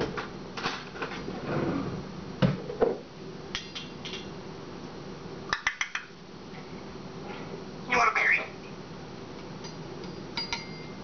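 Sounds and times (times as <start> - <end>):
knocks on kitchen counter: 2.4 - 3.0
glass jar clinking: 9.6 - 11.0.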